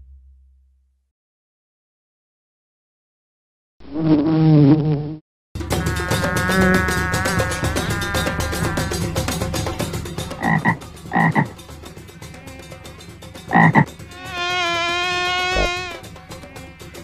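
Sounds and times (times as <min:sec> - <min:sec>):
steady buzz: 0:05.6 - 0:17.0
frog croaking: 0:05.8 - 0:09.1, 0:10.4 - 0:11.6, 0:13.5 - 0:16.0.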